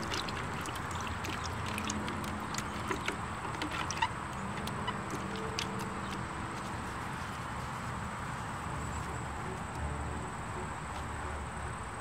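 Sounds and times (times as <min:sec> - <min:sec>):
hand squishing wet soil: 0:00.0 - 0:09.2.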